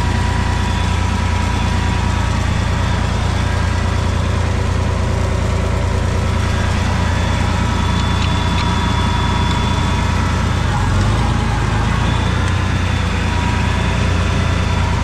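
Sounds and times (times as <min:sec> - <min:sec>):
tractor engine idling: 0:00.0 - 0:15.0.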